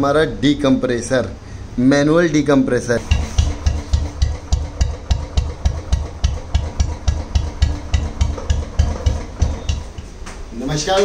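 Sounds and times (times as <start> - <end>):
exhaust ticking: 3.0 - 10.2
motorcycle engine idling: 3.0 - 10.2.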